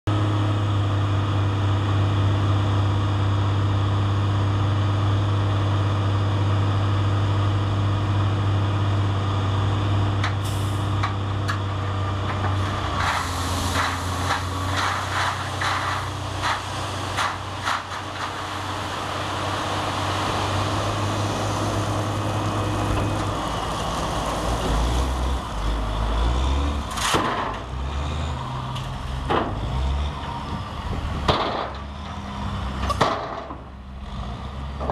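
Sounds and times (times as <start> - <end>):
diesel truck engine running: 0.1 - 34.9
gravel rattling and pouring out: 12.4 - 21.6.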